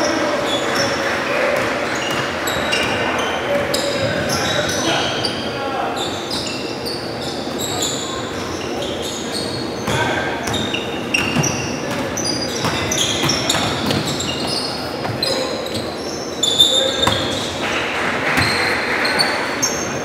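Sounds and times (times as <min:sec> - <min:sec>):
sneakers squeaking on hardwood: 0:01.6 - 0:20.0
basketball bouncing: 0:09.8 - 0:15.9, 0:16.9 - 0:18.7.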